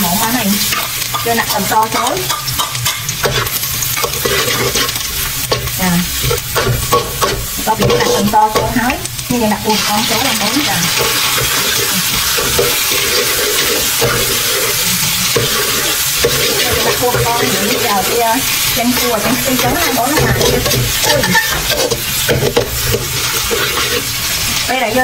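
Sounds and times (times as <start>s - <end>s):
hot oil sizzling: 0.0s - 25.0s
metal spatula scraping wok: 0.0s - 25.0s.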